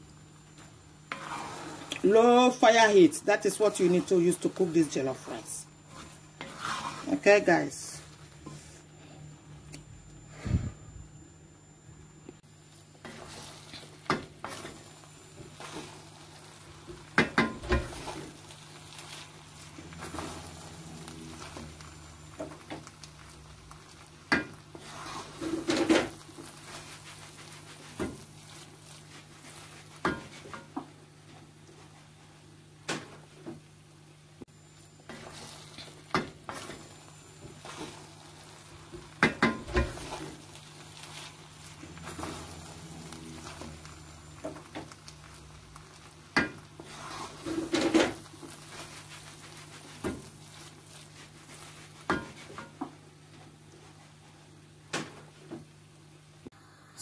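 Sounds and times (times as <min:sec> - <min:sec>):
faint sizzle: 0:00.0 - 0:57.0
wooden spatula scraping pot: 0:01.1 - 0:07.5, 0:13.0 - 0:30.8, 0:35.1 - 0:52.8.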